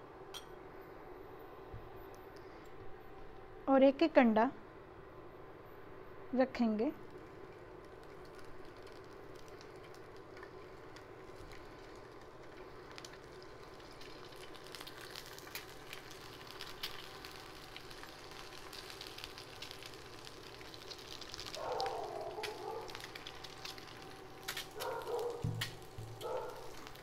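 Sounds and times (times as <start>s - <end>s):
eggs sizzling in oil: 7.0s - 27.0s.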